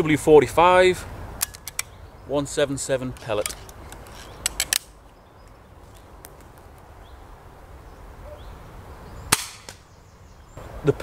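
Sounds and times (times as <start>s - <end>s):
sharp clicks: 1.4s - 2.0s
faint bird chirps: 7.0s - 10.6s
air pistol shot: 9.3s - 9.8s.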